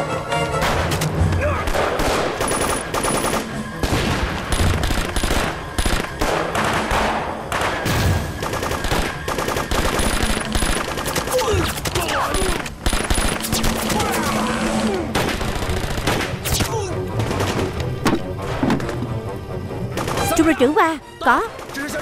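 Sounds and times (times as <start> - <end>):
single gunshots: 1.6 - 14.2
automatic gunfire bursts: 1.7 - 3.5.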